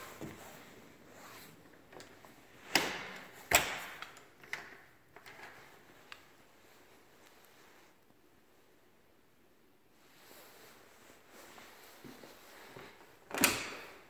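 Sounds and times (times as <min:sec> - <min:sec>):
door clicks: 0:01.9 - 0:05.6.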